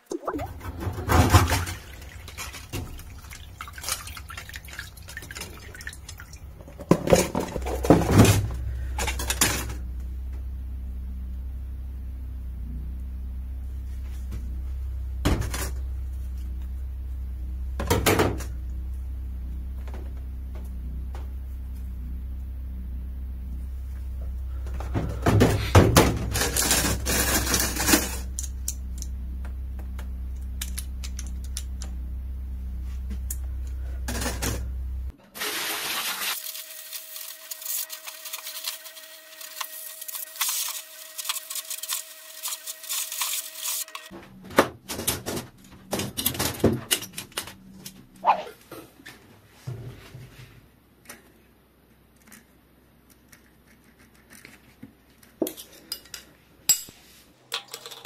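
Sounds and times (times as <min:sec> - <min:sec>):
steady low hum: 0:00.0 - 0:35.2.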